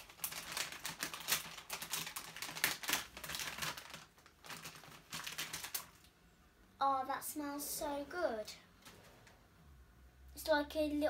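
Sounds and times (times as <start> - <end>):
plastic packaging crinkling: 0.0 - 6.1.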